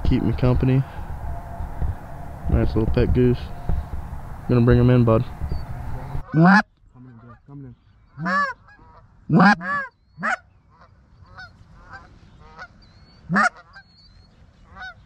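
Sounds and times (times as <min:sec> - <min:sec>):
distant geese honking: 0:00.0 - 0:15.0
geese honking close: 0:00.0 - 0:15.0.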